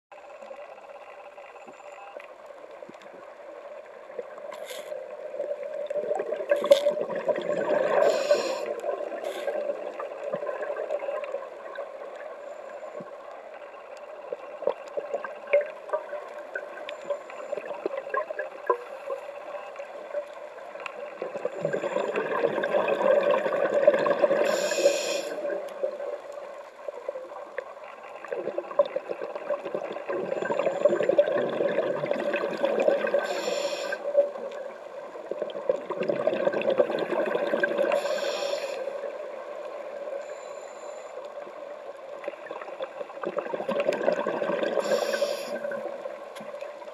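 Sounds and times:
underwater regulator breathing bubbles: 6.5 - 9.8.

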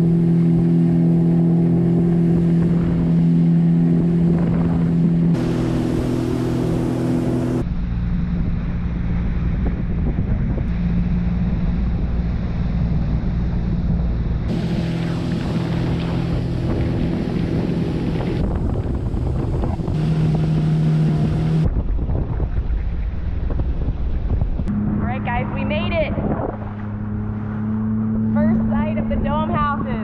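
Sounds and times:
rushing water and spray: 0.0 - 8.2, 10.7 - 24.5
jet ski engine hum: 0.0 - 30.0
wind buffeting microphone: 0.0 - 30.0.

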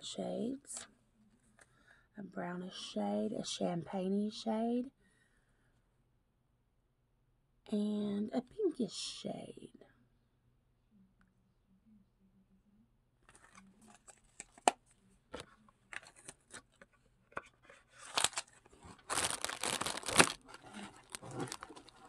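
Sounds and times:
wrapping crinkling and rustling: 13.3 - 22.0.

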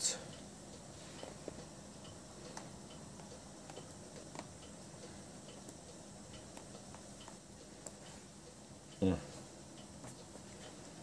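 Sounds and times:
low room background: 0.0 - 11.0
marker pen ticking: 2.1 - 8.6.

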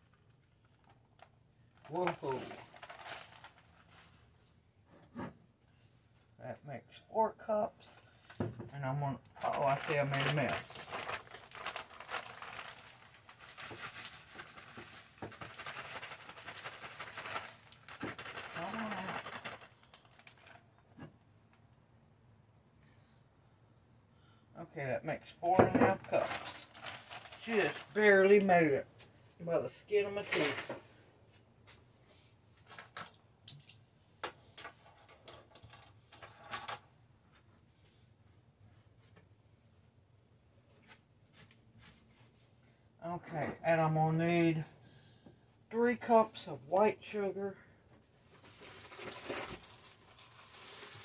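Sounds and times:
plastic bag rustling: 0.5 - 4.4, 9.4 - 20.8, 25.6 - 28.8, 29.9 - 31.5, 48.1 - 51.0.

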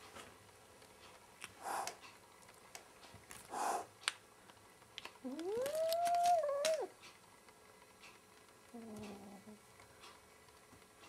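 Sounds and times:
kitten hissing: 1.6 - 2.0, 3.5 - 3.9
kitten growling yowl: 5.2 - 7.0.

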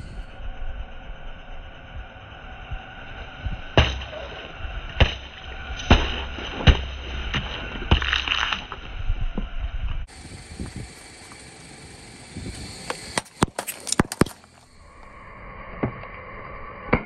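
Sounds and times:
plastic bottles bursting: 13.1 - 14.6.

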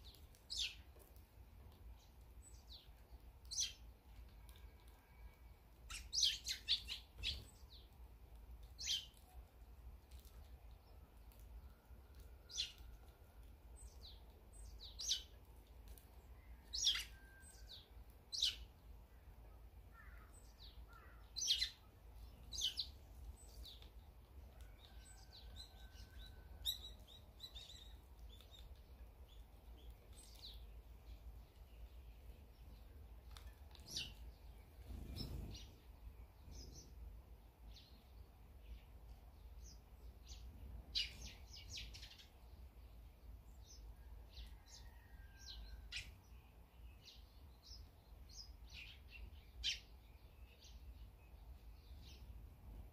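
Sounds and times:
sparrows chirping: 0.0 - 52.9.

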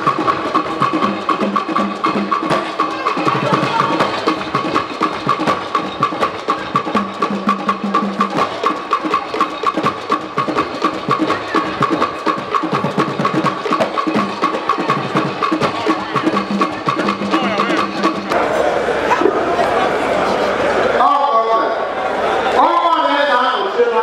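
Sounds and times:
drums: 0.0 - 18.6.

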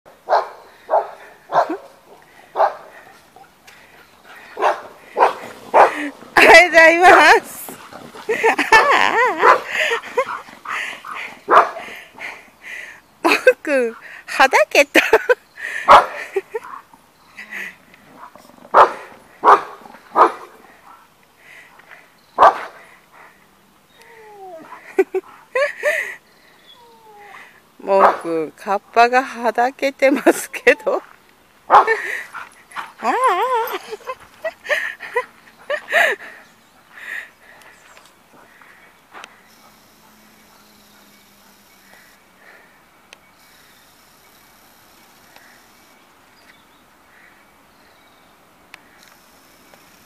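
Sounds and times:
dog barking: 0.3 - 1.8, 2.6 - 2.9, 4.6 - 6.0, 8.8 - 9.7, 11.5 - 11.8, 15.9 - 16.2, 18.7 - 20.5, 22.4 - 22.7, 28.0 - 28.2, 31.7 - 32.0.

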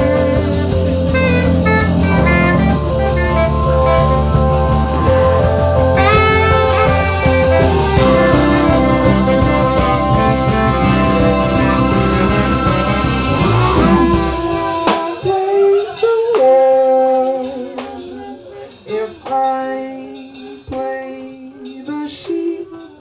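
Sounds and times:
big band playing: 0.0 - 21.7
person singing into a microphone: 6.0 - 23.0.

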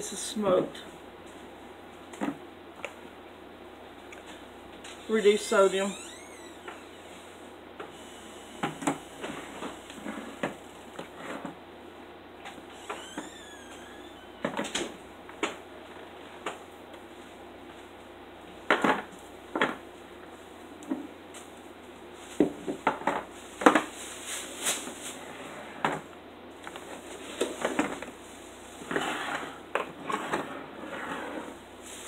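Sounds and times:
shuffling: 23.4 - 25.6.

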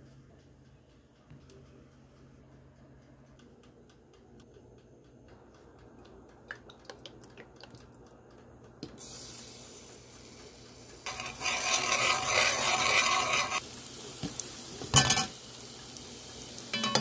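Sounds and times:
faint steady hiss: 13.5 - 17.0.

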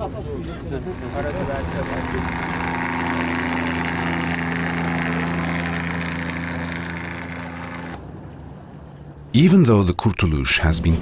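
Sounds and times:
motorboat engine running: 0.0 - 8.1.

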